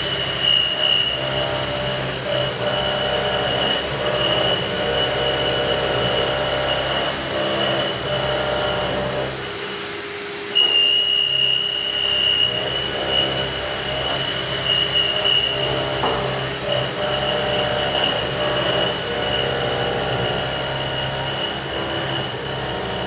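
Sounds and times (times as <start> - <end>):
milling machine cutting whine: 0.0 - 23.0
spindle hum: 10.5 - 23.0.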